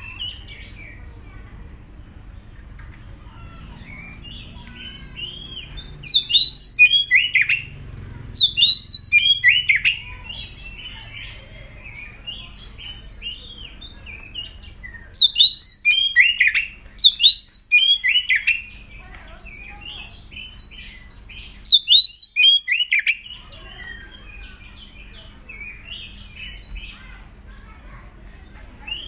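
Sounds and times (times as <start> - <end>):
bird singing whistled phrases: 3.9 - 7.7, 8.4 - 11.1, 11.9 - 18.8, 19.5 - 26.9.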